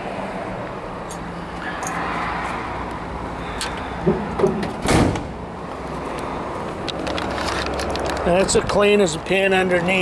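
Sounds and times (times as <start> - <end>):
car door shutting: 4.1 - 5.4.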